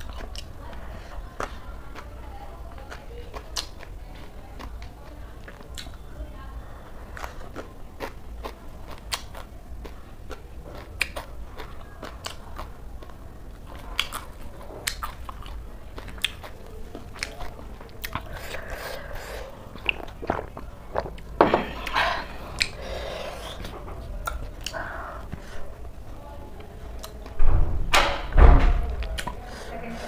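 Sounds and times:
chewing crunchy salad: 0.0s - 6.1s, 6.8s - 27.4s, 29.0s - 30.0s.

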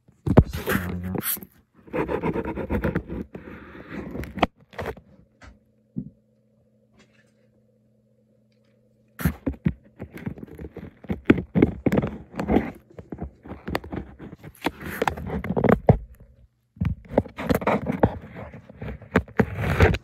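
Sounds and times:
faint steady hum: 0.0s - 20.0s
clatter of handling sounds: 8.6s - 20.0s.

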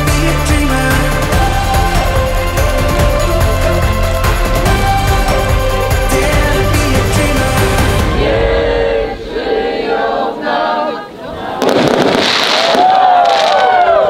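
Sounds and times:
song with singing: 0.0s - 12.2s
crowd cheering and whooping: 11.4s - 14.0s
fireworks crackling and popping: 11.6s - 14.0s.

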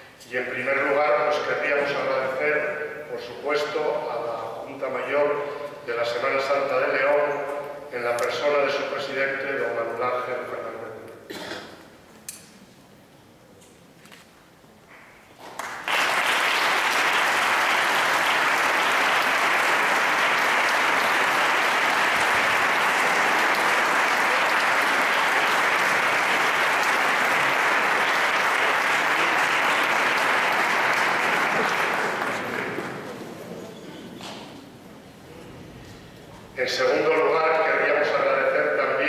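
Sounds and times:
crowd applauding: 15.4s - 33.7s.

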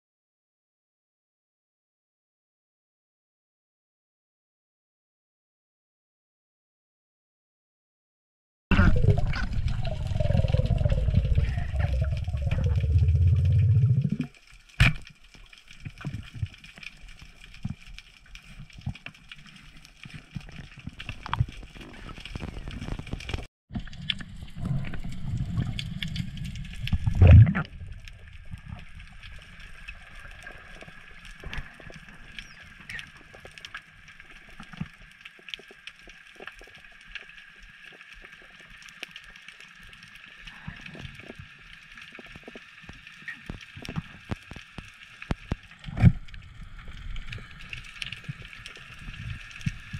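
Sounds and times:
underwater rushing gurgling water: 8.7s - 14.4s, 23.8s - 34.5s.

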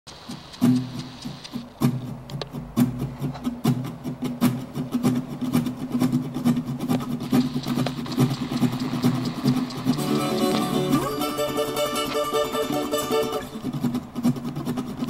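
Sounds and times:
rapid clicking clatter: 4.8s - 10.8s
locomotive engine running: 6.8s - 14.2s.

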